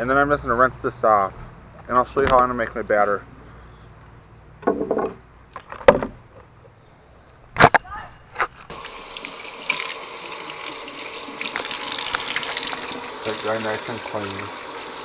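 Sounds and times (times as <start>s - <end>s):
knocks on table: 4.6s - 5.2s
kitchen faucet running: 8.7s - 15.0s.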